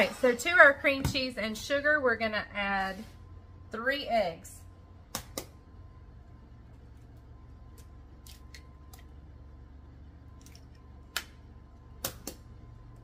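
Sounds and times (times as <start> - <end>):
low steady hum: 0.0 - 13.0
eggshell cracking: 7.6 - 9.2.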